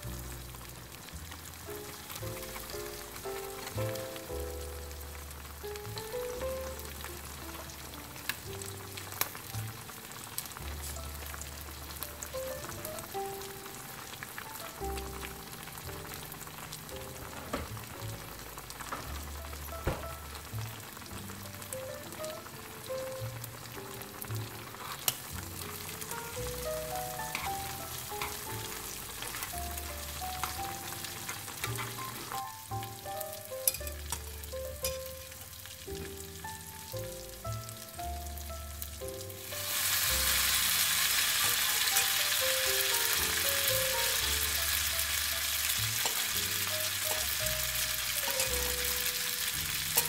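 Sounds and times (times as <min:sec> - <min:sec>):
background music: 0:00.0 - 0:50.0
food sizzling in frying pan: 0:00.0 - 0:50.0
utensil clicking against pan: 0:33.6 - 0:35.1.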